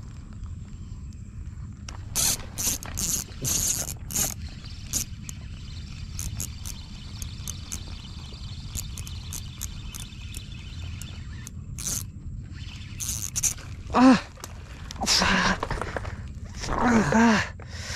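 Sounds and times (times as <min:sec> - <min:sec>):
fishing reel clicking and whirring: 0:01.9 - 0:13.9.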